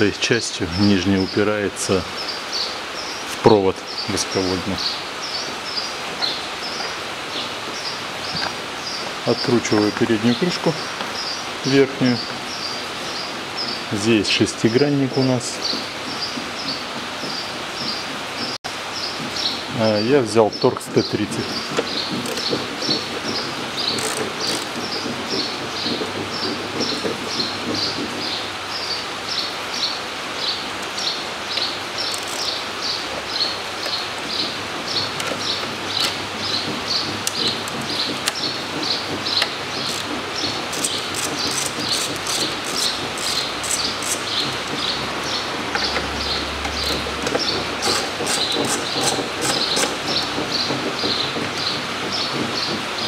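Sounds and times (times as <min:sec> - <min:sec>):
ratchet clicking: 0:21.8 - 0:27.1, 0:30.8 - 0:34.0, 0:39.4 - 0:44.9, 0:45.7 - 0:50.4.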